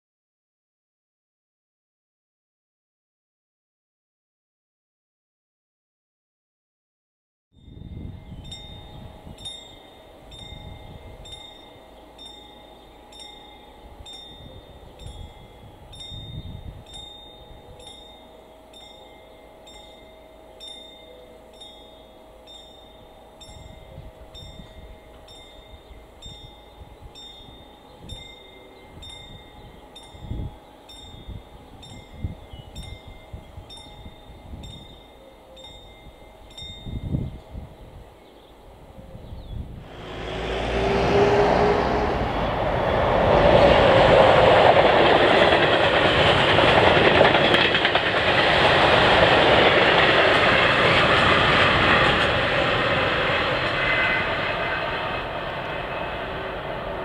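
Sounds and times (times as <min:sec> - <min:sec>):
wind buffeting microphone: 0:07.6 - 0:12.2, 0:13.0 - 0:18.2, 0:23.4 - 0:35.1, 0:35.7 - 0:57.0
level crossing warning bell ringing: 0:07.6 - 0:38.2.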